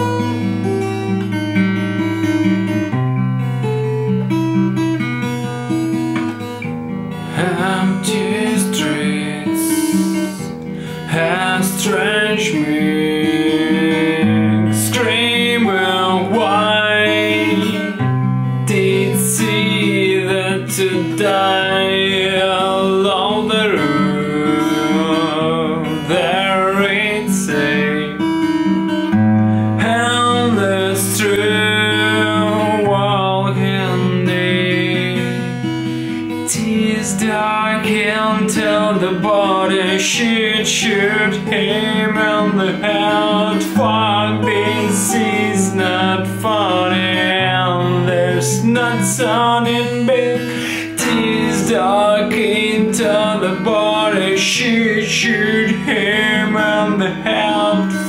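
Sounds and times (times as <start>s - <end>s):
acoustic guitar chords: 0.0s - 58.0s
man singing: 7.2s - 28.7s, 29.5s - 58.0s.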